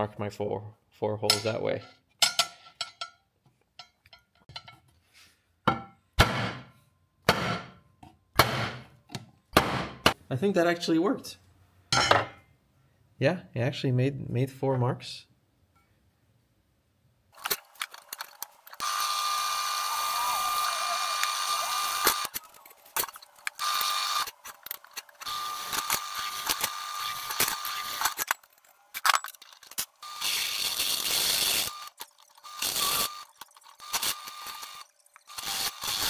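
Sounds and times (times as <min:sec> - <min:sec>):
drill press drilling steel: 0:18.8 - 0:22.4, 0:23.6 - 0:24.3, 0:25.2 - 0:28.2, 0:32.5 - 0:36.0.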